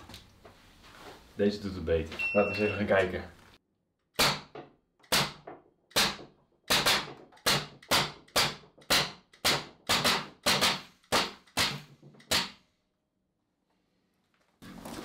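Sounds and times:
air gun firing cracks: 4.2s - 12.7s.

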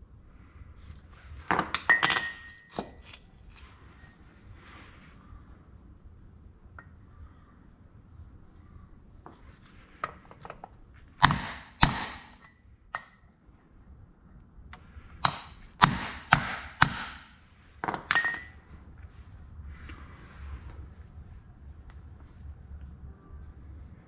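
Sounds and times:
hammer striking steel pipe: 11.2s - 13.2s, 15.2s - 17.4s.

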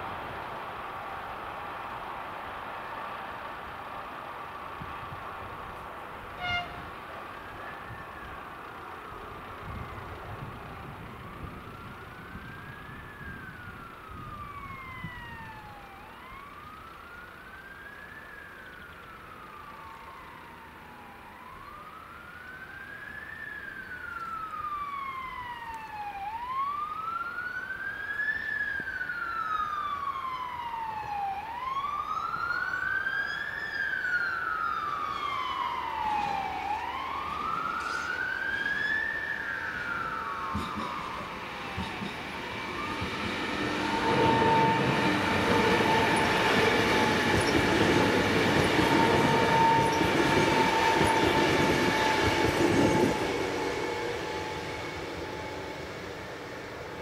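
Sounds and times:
emergency siren wailing: 0.8s - 57.0s.

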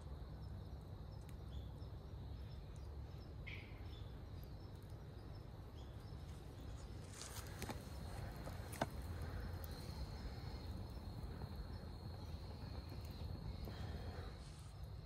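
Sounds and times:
campfire burning: 0.0s - 15.0s
fire crackle: 0.0s - 15.0s.

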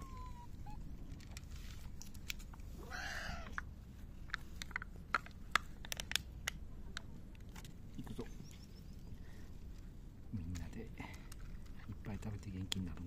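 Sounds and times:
cat meowing: 0.0s - 0.9s, 2.8s - 3.6s
cats crunching dry kibble: 1.0s - 8.3s, 9.6s - 13.0s.

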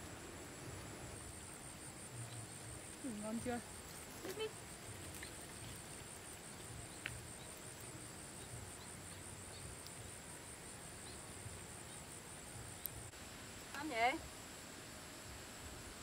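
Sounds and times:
high-pitched insect trill: 0.0s - 16.0s
faint clicks: 12.8s - 13.0s.

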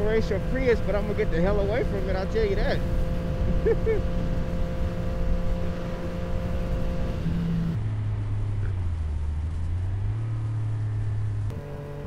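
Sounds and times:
motorcycle engine cruising: 0.0s - 12.0s.

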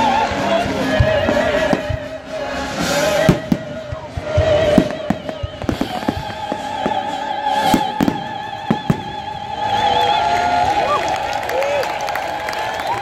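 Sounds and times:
operatic voice singing: 0.0s - 10.4s
firework bangs and crackles: 0.0s - 13.0s
orchestral music: 0.0s - 13.0s.

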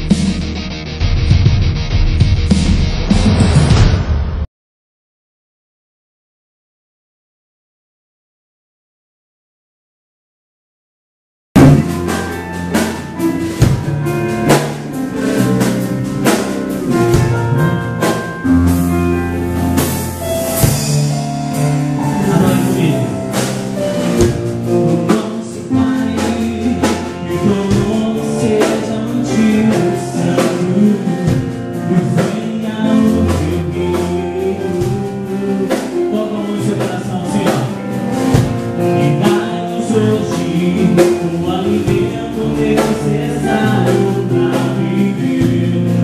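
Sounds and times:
gospel band playing: 11.6s - 46.0s
person singing: 16.8s - 18.5s, 20.9s - 37.8s, 38.8s - 46.0s.

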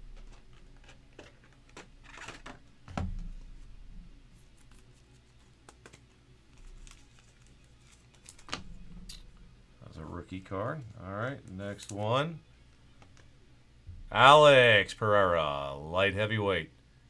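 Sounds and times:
plastic rustling: 4.4s - 9.4s.

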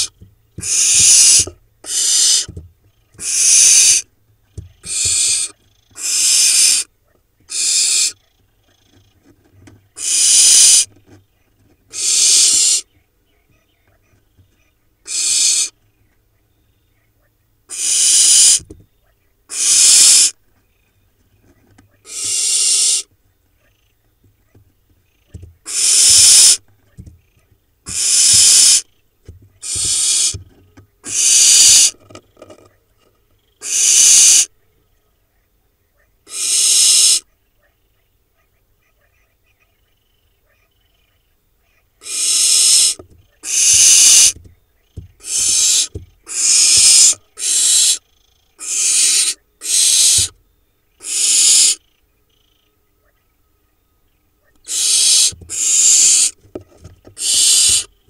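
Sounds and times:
owl chicks hissing rasps: 0.0s - 2.5s, 3.2s - 4.1s, 4.8s - 6.9s, 7.5s - 8.2s, 9.9s - 10.9s, 11.9s - 12.9s, 15.0s - 15.8s, 17.7s - 18.7s, 19.5s - 20.4s, 22.0s - 23.1s, 25.6s - 26.6s, 27.9s - 28.9s, 29.6s - 30.4s, 31.0s - 32.0s, 33.6s - 34.5s, 36.3s - 37.3s, 42.0s - 44.4s, 45.2s - 51.9s, 54.6s - 56.4s, 57.1s - 58.0s.

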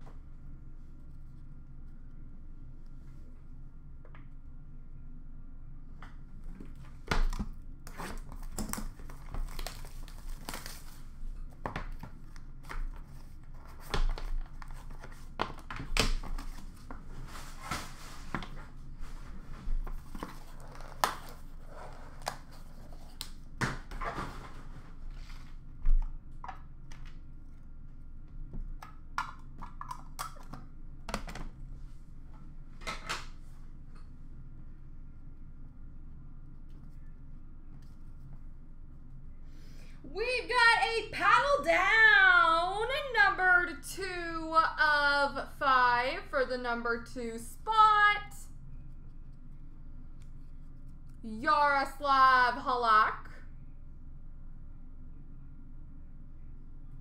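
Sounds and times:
packaging rustling and crinkling: 8.1s - 11.2s.

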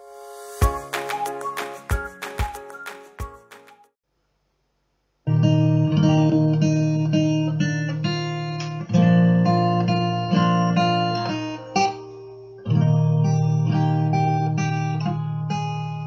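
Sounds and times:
plucked acoustic guitar music: 5.3s - 16.0s.

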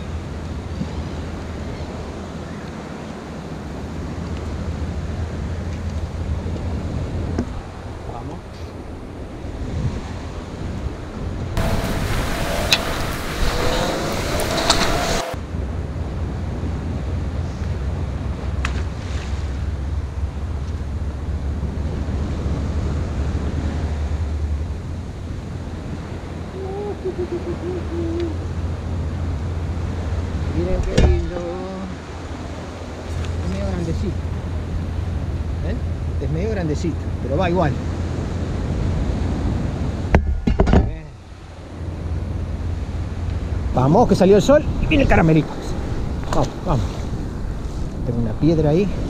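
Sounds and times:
wind buffeting microphone: 0.0s - 49.0s
surf washing against rocks: 11.6s - 15.4s, 41.3s - 49.0s.

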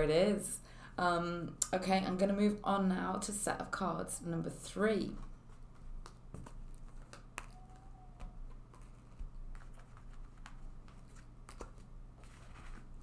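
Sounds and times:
cards clicking and tapping: 5.2s - 12.8s.

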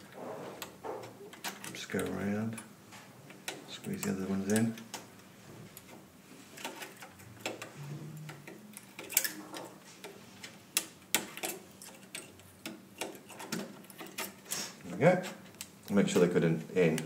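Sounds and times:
metal pliers clicking on pins: 3.3s - 5.0s, 8.3s - 9.7s, 10.8s - 14.4s.

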